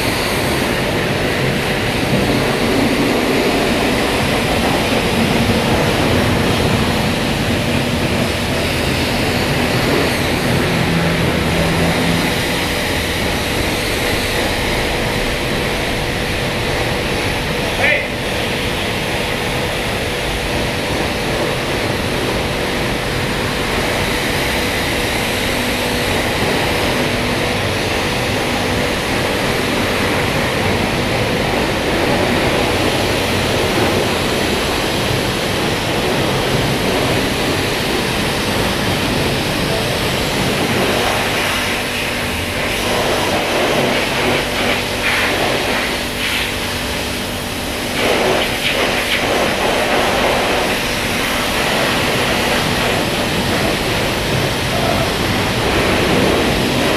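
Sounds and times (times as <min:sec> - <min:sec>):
pressure washer spraying: 0:00.0 - 0:56.9.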